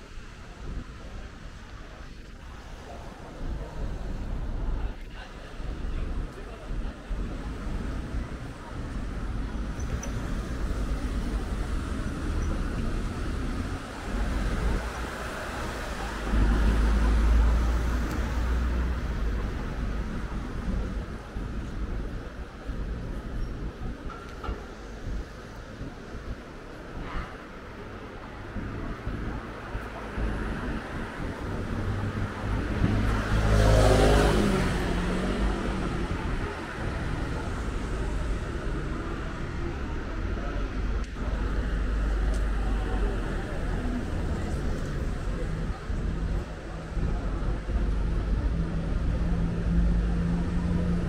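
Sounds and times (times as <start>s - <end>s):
street traffic rumble: 0.0s - 51.0s
vehicle passing by: 31.8s - 37.6s.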